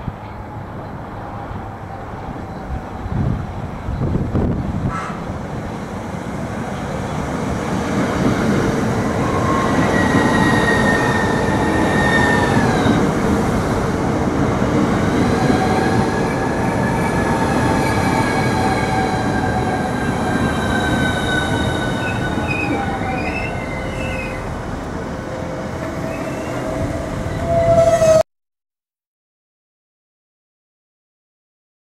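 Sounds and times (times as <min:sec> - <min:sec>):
electric train whine: 0:00.0 - 0:28.2
train wheels rumbling on rails: 0:00.0 - 0:28.2
brake squeal: 0:20.7 - 0:24.5, 0:25.4 - 0:28.2.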